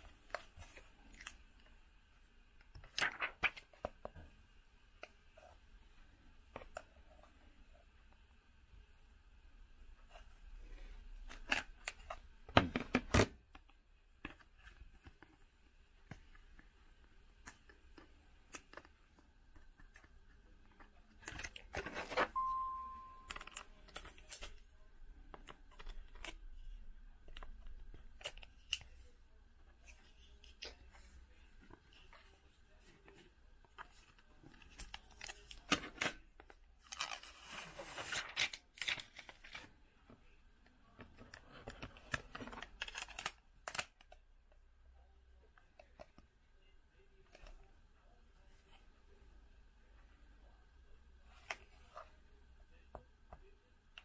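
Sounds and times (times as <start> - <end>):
short beep: 22.3 - 23.4.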